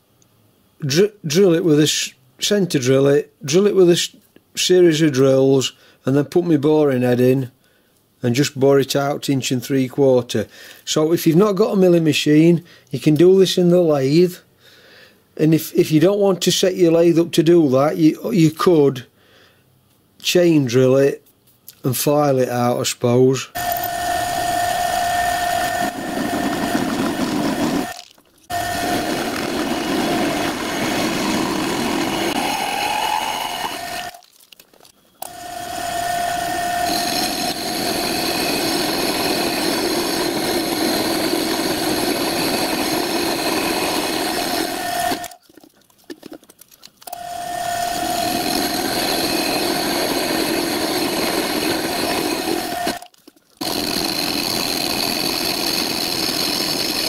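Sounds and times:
metal cutting noise: 0:23.6 - 0:34.3, 0:35.2 - 0:45.4, 0:47.1 - 0:57.0
milling spindle whine: 0:23.6 - 0:45.4, 0:47.0 - 0:57.0.

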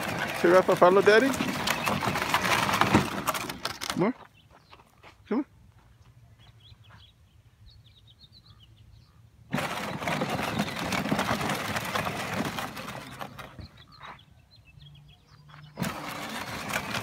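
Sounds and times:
toy electric motor and gearbox: 0:00.0 - 0:04.0, 0:09.5 - 0:13.7, 0:15.7 - 0:17.0
small birds chirping: 0:00.2 - 0:02.6, 0:04.0 - 0:17.0.

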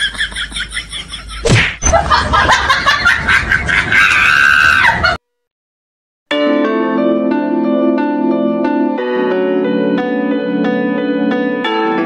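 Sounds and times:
rapid slaps and blows: 0:01.5 - 0:01.8.

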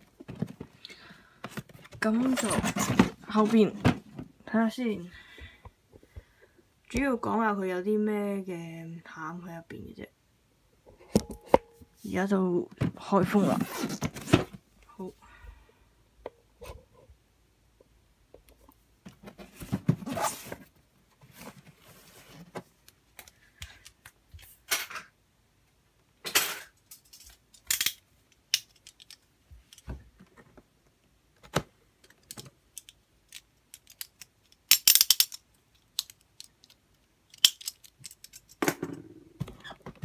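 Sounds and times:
cardboard box scraping and rustling: 0:19.4 - 0:22.6.

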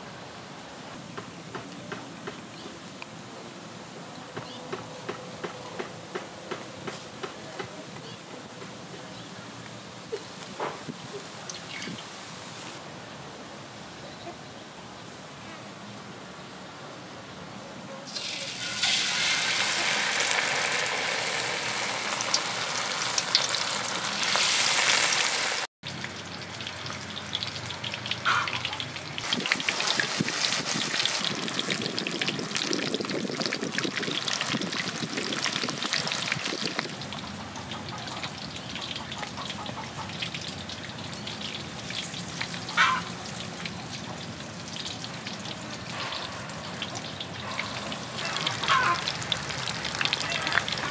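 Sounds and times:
deep-frying in hot oil: 0:09.8 - 0:12.8, 0:18.0 - 0:50.9.

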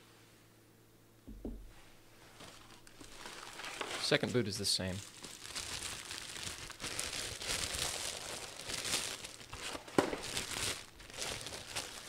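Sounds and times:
plastic bag crinkling: 0:02.4 - 0:12.0.

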